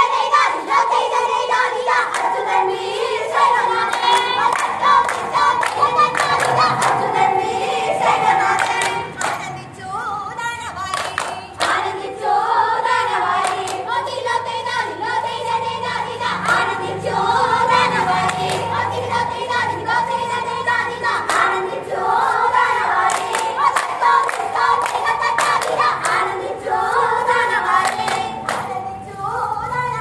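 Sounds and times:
group singing in chorus: 0.0 - 10.2, 10.8 - 30.0
hand claps: 3.8 - 7.1, 8.5 - 9.5, 10.9 - 11.9, 13.4 - 13.8, 16.4 - 16.7, 18.3 - 18.8, 21.2 - 21.5, 23.0 - 26.3, 27.8 - 28.7.

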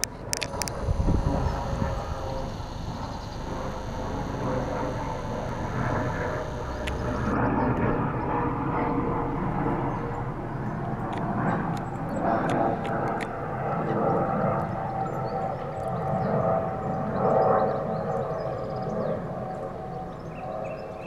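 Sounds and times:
distant helicopter flying past: 0.0 - 14.3.

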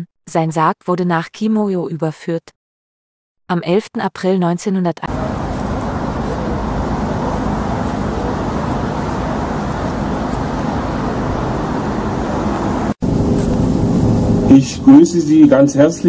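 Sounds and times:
street traffic rumble: 5.1 - 15.4.

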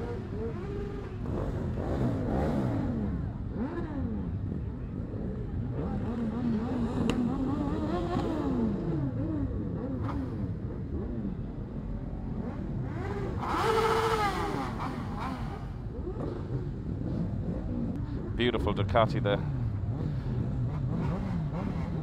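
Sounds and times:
motorcycles revving: 0.0 - 22.0.

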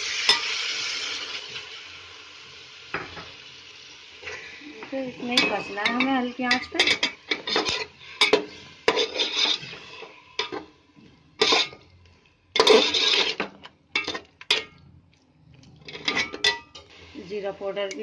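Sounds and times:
masala frying: 0.0 - 18.0
spatula scraping metal pot: 5.2 - 10.7, 11.4 - 11.9, 12.6 - 14.8, 15.7 - 18.0.

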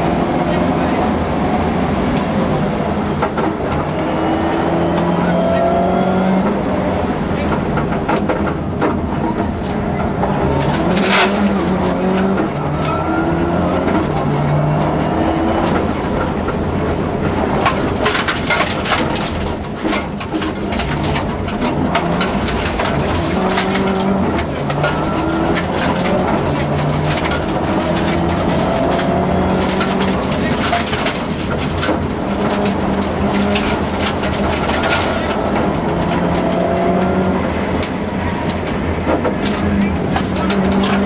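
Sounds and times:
rally car engine revving: 0.0 - 41.0
stones clattering against car: 9.4 - 15.0, 15.6 - 41.0.

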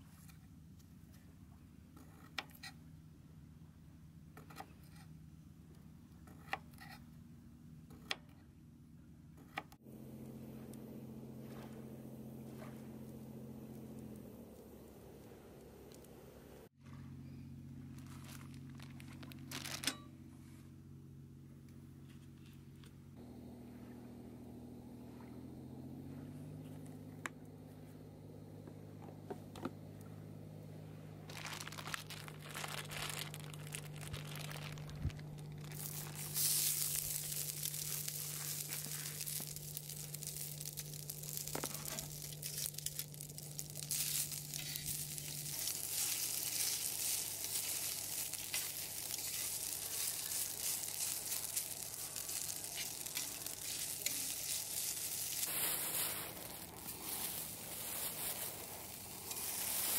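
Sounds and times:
plastic packaging crinkling: 17.9 - 20.0, 31.3 - 59.9
noodles sizzling in a frying pan: 31.3 - 59.9.

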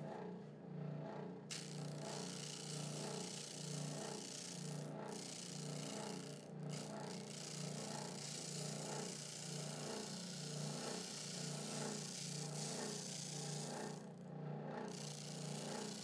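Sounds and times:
wood sanding hiss: 1.5 - 13.7
sander motor hum: 1.5 - 14.2, 14.8 - 16.0.

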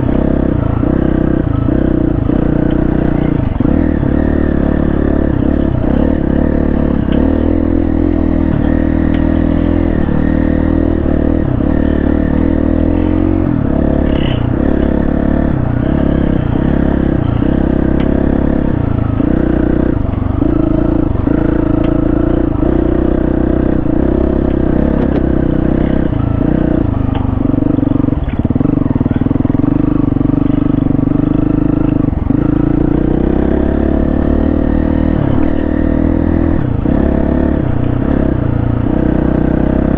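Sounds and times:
motorcycle engine running: 0.0 - 39.9
light clattering from motorcycle: 24.3 - 29.6.

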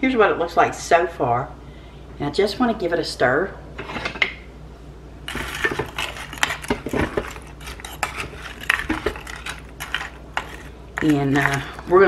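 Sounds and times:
wooden spoon scraping crock: 5.3 - 12.0.

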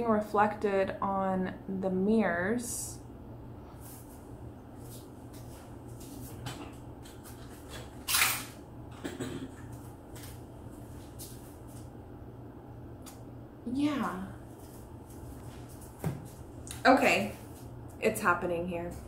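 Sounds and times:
steady low hum: 0.0 - 19.0
footsteps: 14.0 - 17.7.

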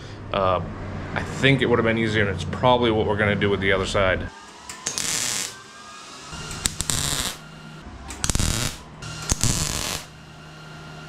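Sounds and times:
faint welder hum: 4.4 - 11.0
welder crackling bursts: 4.7 - 5.6, 6.4 - 7.5, 8.1 - 10.2.

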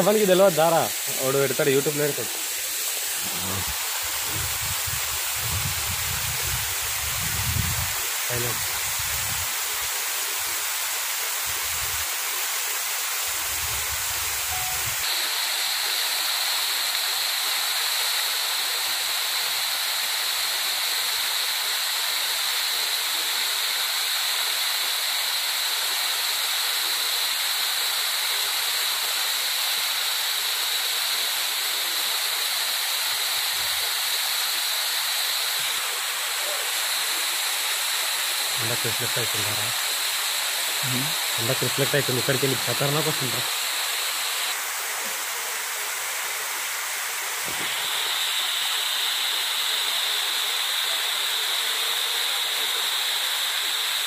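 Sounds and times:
small waterfall splashing on rock: 39.8 - 51.1.

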